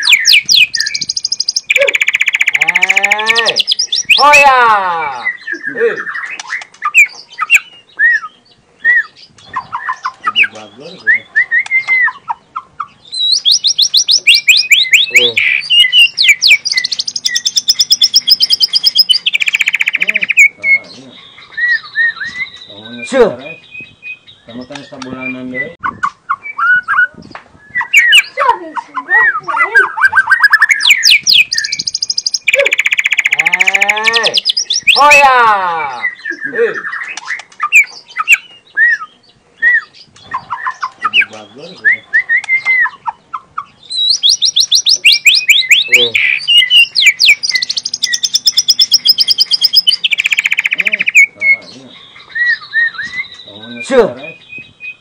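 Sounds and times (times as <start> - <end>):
bird rapid trills: 0.0 - 4.2, 13.2 - 20.6, 29.8 - 35.0, 44.0 - 51.4
songbird whistling song: 0.0 - 4.3, 5.2 - 35.0, 35.9 - 55.0.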